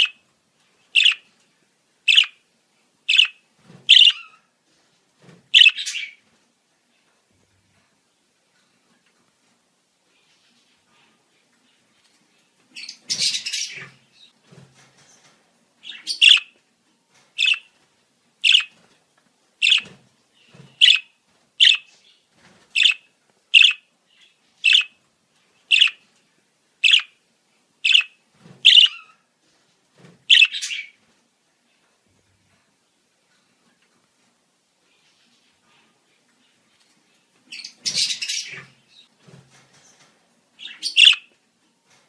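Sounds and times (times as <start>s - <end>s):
budgerigar chattering and chirping: 1.0s - 1.2s, 2.1s - 2.4s, 3.1s - 4.3s, 5.6s - 6.1s, 15.9s - 16.5s, 17.4s - 17.7s, 18.4s - 18.7s, 19.6s - 19.8s, 20.8s - 21.9s, 22.8s - 23.0s, 23.6s - 23.8s, 24.7s - 24.9s, 25.7s - 26.0s, 26.8s - 27.1s, 27.9s - 28.1s, 28.7s - 29.0s, 30.3s - 30.9s, 40.7s - 41.3s.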